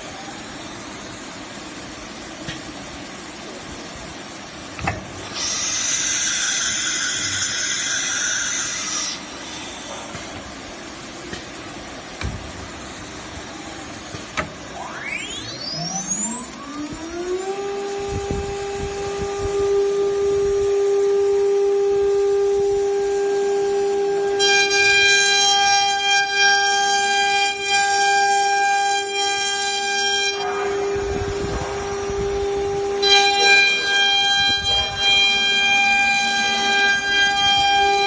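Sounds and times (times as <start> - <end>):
router spindle high whine: 4.7 - 10.4, 12.8 - 38.0
router bit cutting board: 4.8 - 10.3, 22.6 - 38.0.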